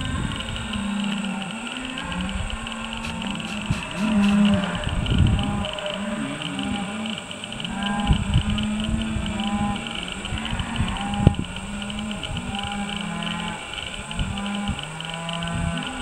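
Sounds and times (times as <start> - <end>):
cattle mooing: 1.3 - 13.6.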